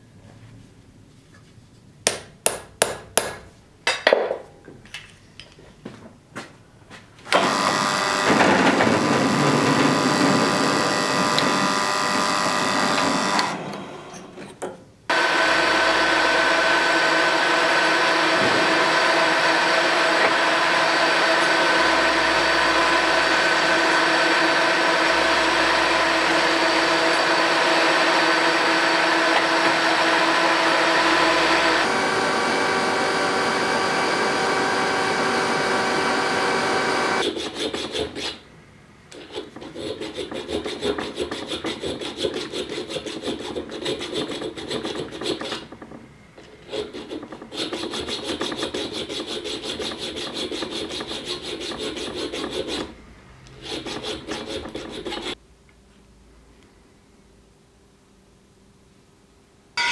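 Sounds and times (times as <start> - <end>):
drill boring through metal: 7.4 - 14.2, 15.1 - 37.2
file rasping on metal: 37.2 - 38.4, 39.1 - 45.8, 46.4 - 55.4.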